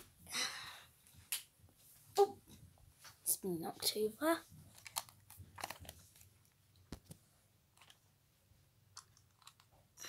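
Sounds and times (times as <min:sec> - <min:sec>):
plastic toy vehicles clicking: 0:04.7 - 0:06.0, 0:09.0 - 0:09.7.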